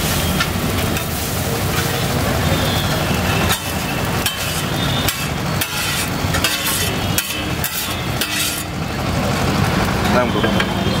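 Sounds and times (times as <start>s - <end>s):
metal spatula scraping an iron pan: 3.5s - 8.8s.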